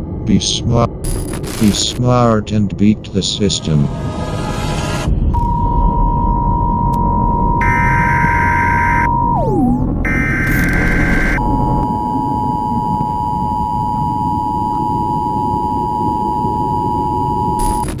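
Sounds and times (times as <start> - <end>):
bursts of static: 1.0 - 2.0, 7.3 - 18.0
beep swooping down in pitch: 5.4 - 17.6
two-note alert tone: 8.9 - 12.6.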